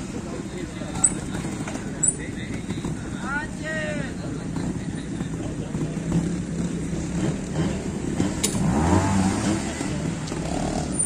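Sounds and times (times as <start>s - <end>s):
motorcycle engine revving: 4.4s - 11.0s
sharp click: 8.4s - 8.6s.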